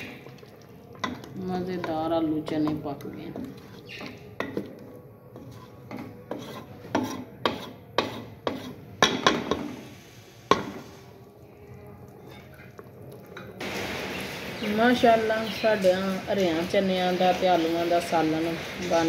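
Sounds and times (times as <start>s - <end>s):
wooden spoon stirring curry: 0.0s - 9.8s, 10.6s - 13.6s
spoon knocking on metal pot: 6.9s - 9.7s.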